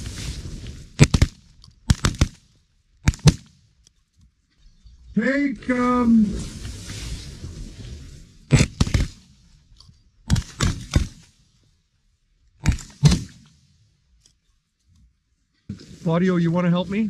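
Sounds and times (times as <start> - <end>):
shotgun blasts: 0.9 - 3.6, 8.5 - 9.4, 10.3 - 11.3, 12.6 - 13.7.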